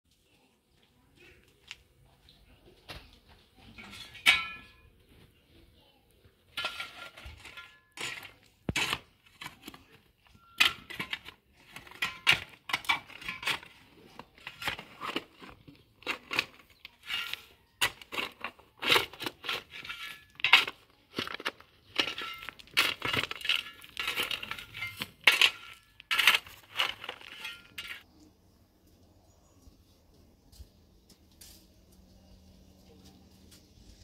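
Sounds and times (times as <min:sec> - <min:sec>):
metal scraping and clinking: 0:03.7 - 0:05.0, 0:06.5 - 0:28.3.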